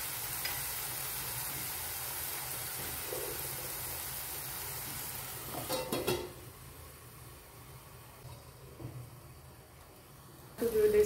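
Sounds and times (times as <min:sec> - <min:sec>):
gravy sizzling in a frying pan: 0:00.0 - 0:11.0
metal lid clattering onto pan: 0:05.5 - 0:06.4.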